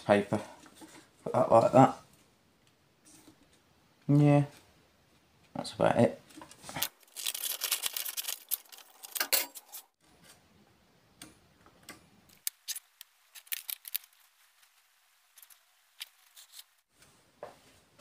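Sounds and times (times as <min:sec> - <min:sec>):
small objects clicking and tapping: 0:11.2 - 0:14.3.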